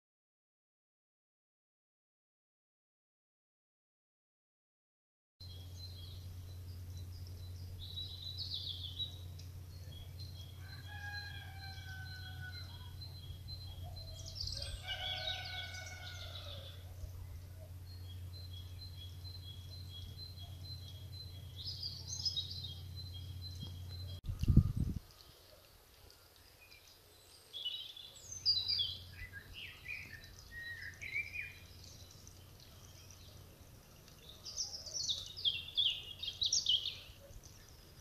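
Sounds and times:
steady low hum: 5.4 - 25.6, 28.2 - 38.0
small birds chirping: 5.4 - 38.0
rooster crowing: 10.4 - 13.2, 13.9 - 17.0.

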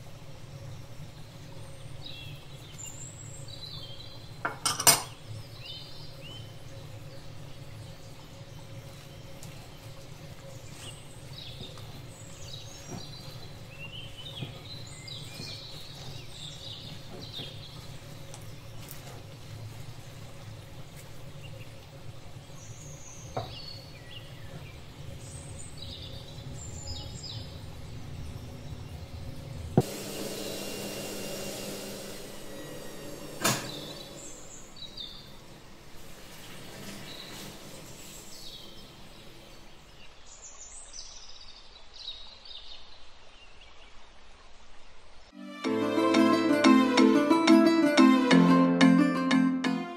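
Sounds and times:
birds chirping: 0.0 - 41.4
steady low hum: 19.3 - 36.2.

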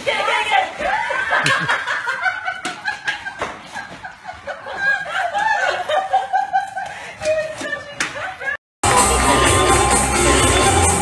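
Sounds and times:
person cackling laughter: 1.0 - 7.4.

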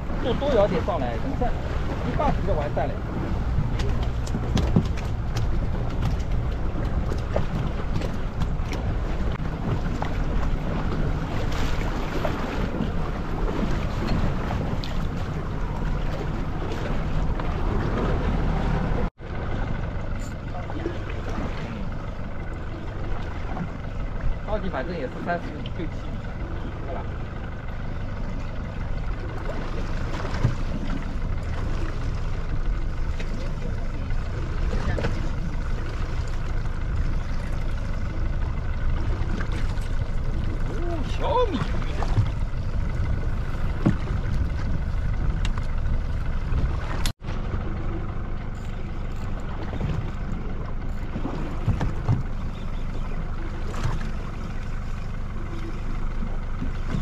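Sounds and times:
low rumble: 0.0 - 57.0
wind and water noise: 0.0 - 57.0
wind buffeting microphone: 36.8 - 47.2.

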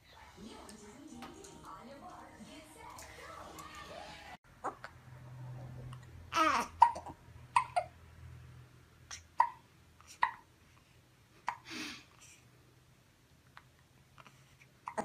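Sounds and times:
baby hiccupping: 4.6 - 5.0, 6.3 - 7.9, 9.1 - 10.5.

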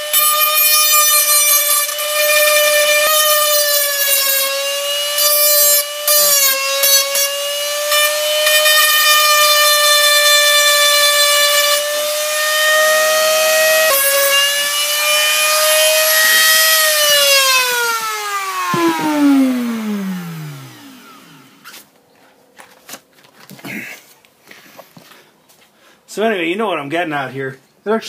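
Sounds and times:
rotary tool whining: 0.0 - 21.9.

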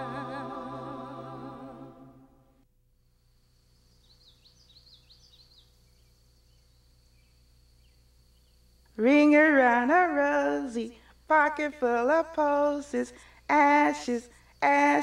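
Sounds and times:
thin steady high tone: 0.0 - 2.4
bird chirping: 3.8 - 8.6.

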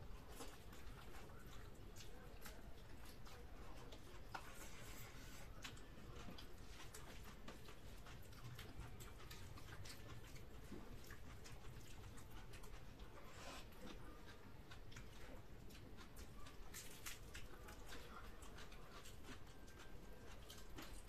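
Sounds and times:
wet eating clicks and smacks: 0.0 - 4.6, 5.5 - 21.0
fingers squishing food: 0.0 - 21.0.

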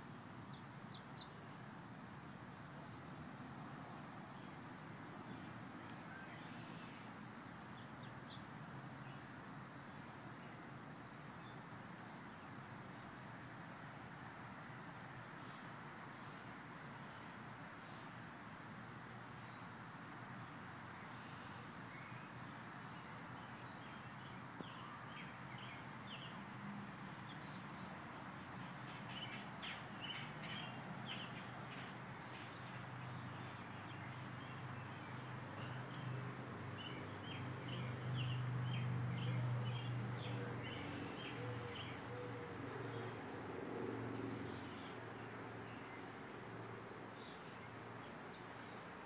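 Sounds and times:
birds chirping: 36.6 - 43.0.

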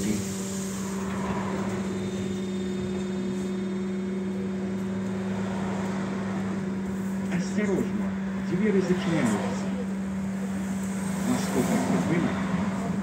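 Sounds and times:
trolleybus electrical hum: 0.0 - 13.0.

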